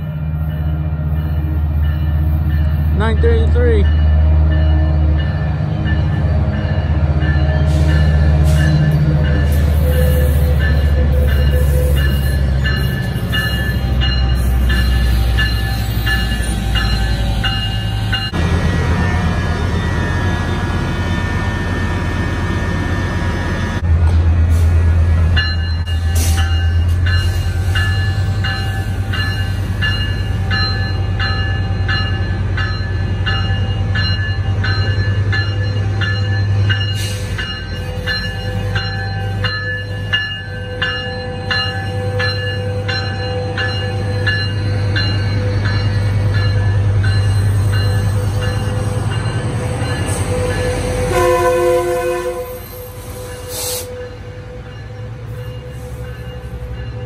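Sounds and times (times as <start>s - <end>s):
locomotive bell ringing: 0.0s - 23.8s, 25.3s - 57.0s
diesel locomotive engine hum: 0.0s - 57.0s
locomotive horn blast: 50.3s - 53.0s.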